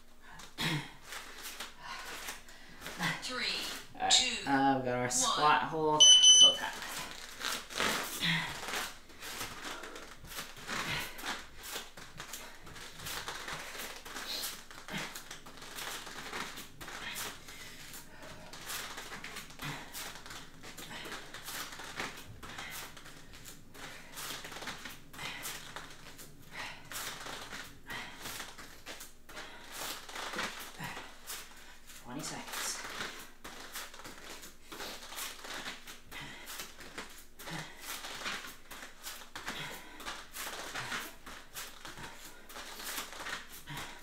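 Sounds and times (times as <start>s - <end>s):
bare feet on foam mats: 0.0s - 4.4s, 5.1s - 44.0s
person breathing hard: 8.0s - 31.9s, 36.1s - 38.3s, 39.4s - 44.0s.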